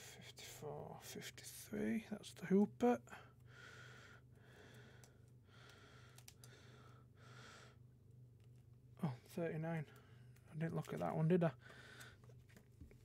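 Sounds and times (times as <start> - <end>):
low steady hum: 0.0 - 13.0
faint breathing: 3.1 - 7.9, 11.6 - 12.4.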